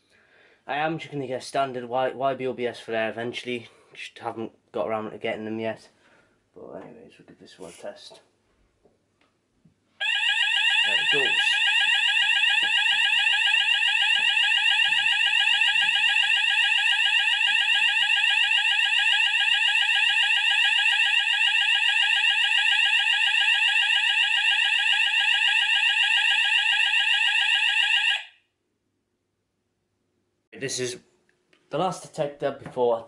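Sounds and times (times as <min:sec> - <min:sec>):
rapidly sweeping fire alarm tone: 0:10.0 - 0:28.4.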